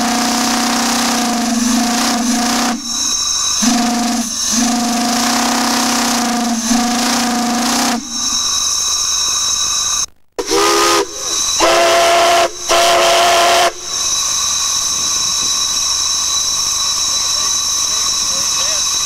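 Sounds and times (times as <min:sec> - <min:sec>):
deep chord steam whistle blasts: 0:00.0 - 0:08.4, 0:10.4 - 0:16.4
shrill steam whistles: 0:00.0 - 0:19.0
steam hissing: 0:00.0 - 0:19.0.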